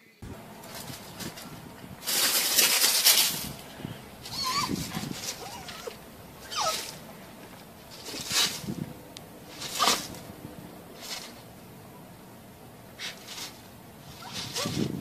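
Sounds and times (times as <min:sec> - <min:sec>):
loud rush of noise: 0:00.0 - 0:15.0
high wavering animal calls: 0:03.7 - 0:07.2.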